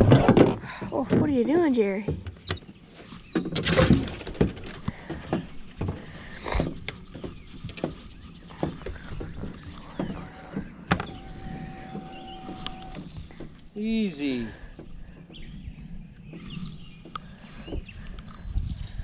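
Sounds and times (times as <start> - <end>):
knocks and clunks on deck: 0.0 - 13.7, 14.6 - 15.6.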